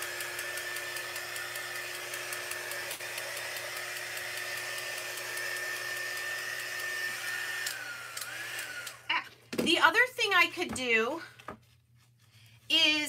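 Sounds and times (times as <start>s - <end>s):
heat gun fan whining: 0.0s - 9.1s.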